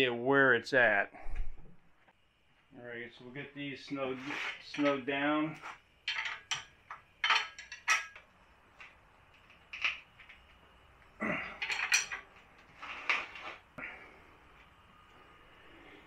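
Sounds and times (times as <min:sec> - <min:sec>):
metal tools clinking on steel: 0:04.6 - 0:05.2, 0:06.0 - 0:10.6, 0:11.4 - 0:12.4.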